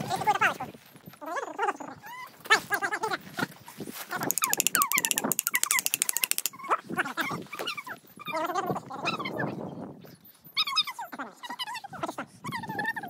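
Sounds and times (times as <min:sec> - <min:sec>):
fast run of clicks: 0:04.2 - 0:06.6.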